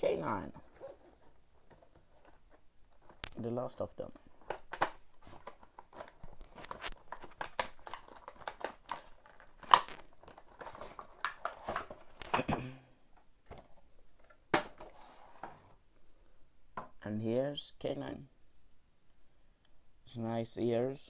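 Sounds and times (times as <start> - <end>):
cardboard and plastic crinkling: 0.6 - 12.6.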